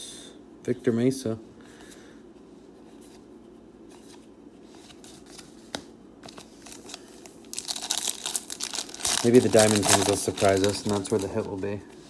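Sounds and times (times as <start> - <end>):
foil wrapper crinkling: 6.5 - 11.8.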